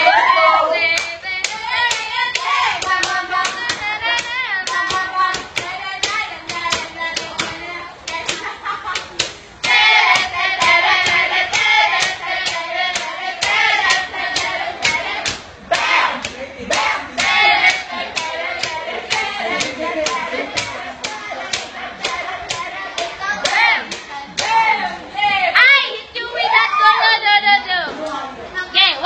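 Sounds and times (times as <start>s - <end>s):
rhythmic hand clapping: 0.7s - 24.9s
pop music with singing: 9.6s - 25.6s.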